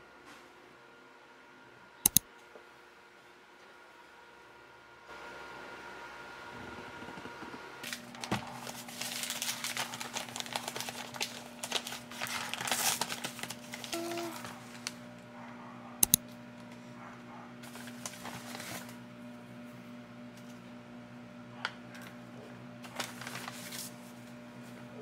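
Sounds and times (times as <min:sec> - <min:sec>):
sharp clicks: 0:02.0 - 0:02.3, 0:16.0 - 0:16.2
paper bag crinkling: 0:07.8 - 0:15.2, 0:17.6 - 0:19.0, 0:22.8 - 0:24.2.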